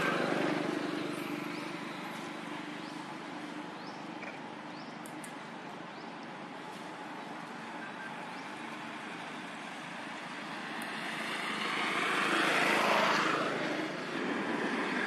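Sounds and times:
passing engine: 0.0s - 4.0s, 7.0s - 15.0s.

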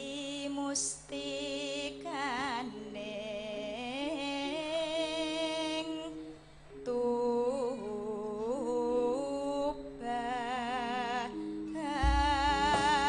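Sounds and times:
woman singing with vibrato: 0.0s - 13.0s
held accompaniment tones: 11.4s - 13.0s
deep drum beat: 12.0s - 13.0s.

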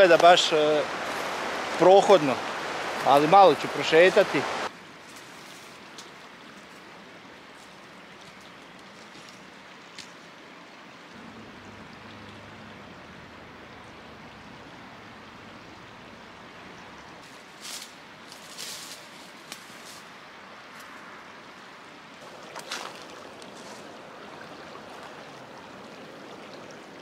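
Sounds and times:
creek water rushing over stones: 0.0s - 27.0s
twigs snapping underfoot: 17.6s - 20.0s.

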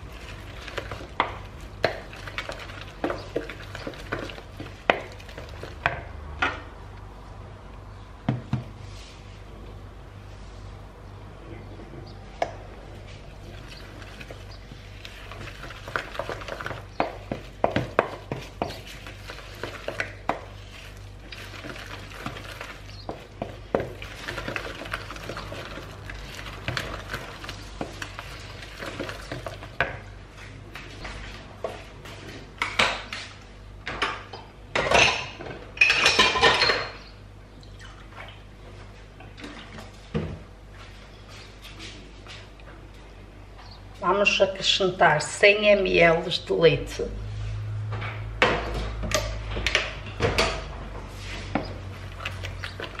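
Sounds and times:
wooden spoon stirring batter: 0.0s - 6.2s, 12.4s - 32.4s, 50.9s - 53.0s.

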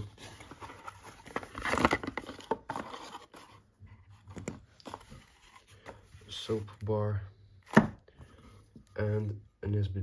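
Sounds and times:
cardboard box rustling and scraping: 0.0s - 5.7s.

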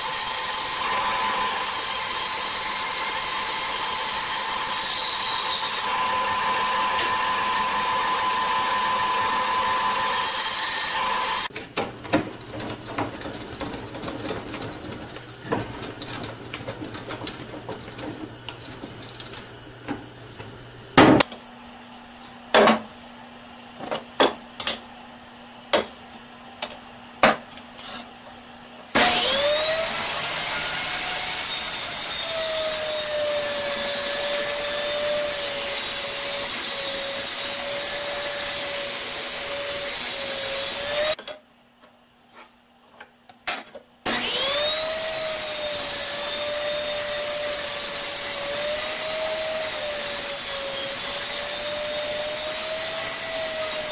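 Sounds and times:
table saw motor whining: 0.0s - 11.5s, 28.9s - 41.2s, 44.1s - 53.9s.

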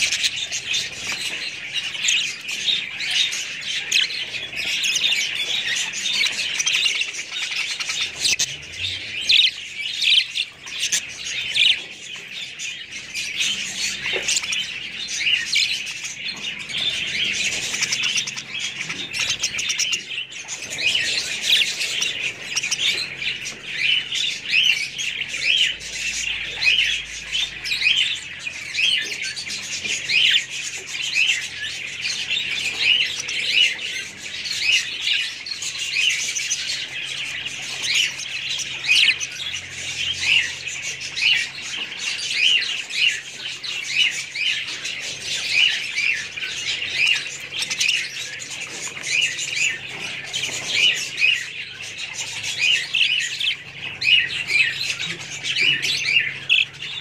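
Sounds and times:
budgerigars chattering: 0.0s - 57.0s.

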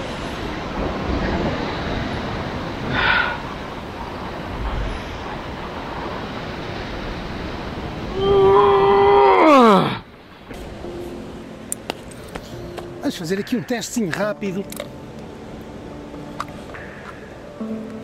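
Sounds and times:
wind on microphone: 0.0s - 9.3s
sea surf washing against rocks: 0.0s - 17.6s.

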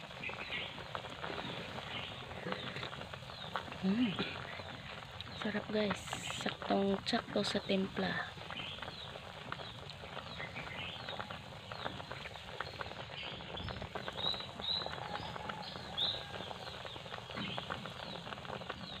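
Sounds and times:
birds chirping: 0.0s - 19.0s
pot simmering with bubbling crackle: 0.0s - 19.0s.

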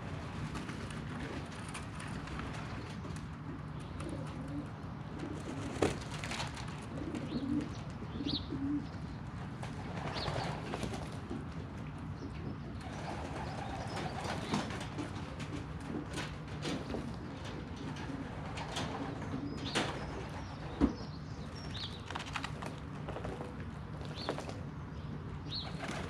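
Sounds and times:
pigeons cooing: 2.5s - 11.0s, 12.2s - 24.6s.

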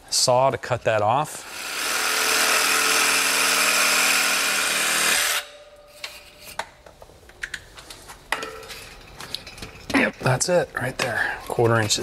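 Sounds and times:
reciprocating saw cutting: 1.3s - 5.6s.

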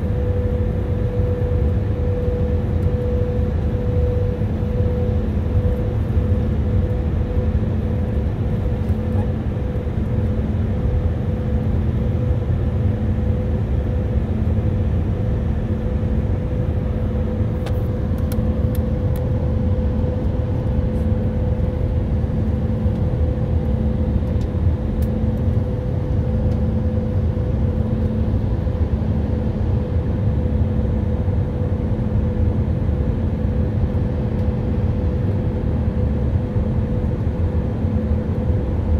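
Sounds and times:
airplane cabin air and engine drone: 0.0s - 38.9s.

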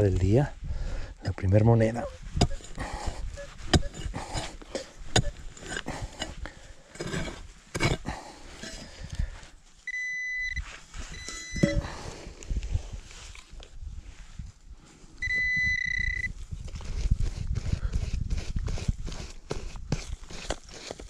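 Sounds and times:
pick striking dry soil: 1.2s - 10.0s, 10.6s - 12.7s, 15.2s - 21.0s
metal detector beeping: 9.9s - 12.0s, 15.2s - 16.3s.

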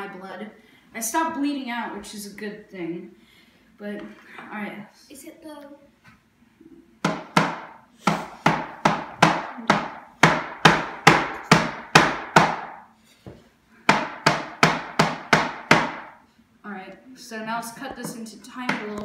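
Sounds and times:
knife chopping on plastic board: 13.9s - 16.2s.

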